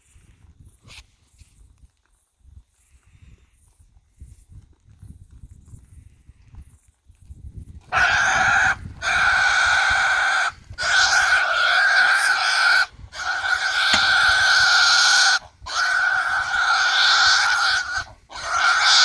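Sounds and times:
hog squealing: 7.9 - 19.0.

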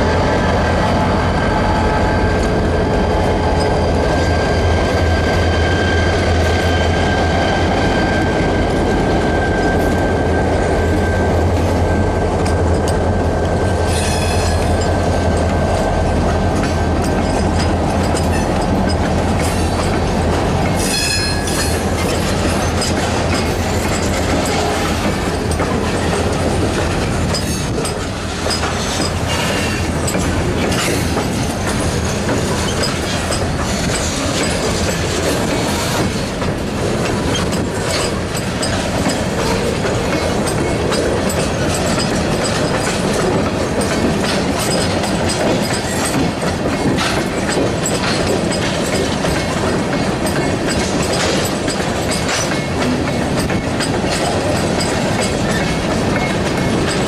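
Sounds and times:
freight train rumble: 0.0 - 57.0
train wheels clattering over rail joints: 2.3 - 57.0
high wheel squeal: 28.8 - 29.9.

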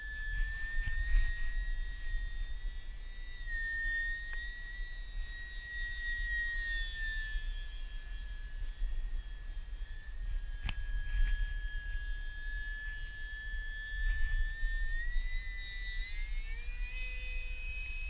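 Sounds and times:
wind rumbling on microphone: 0.0 - 3.3, 8.2 - 16.5
electric motor propeller whine: 0.0 - 18.0.

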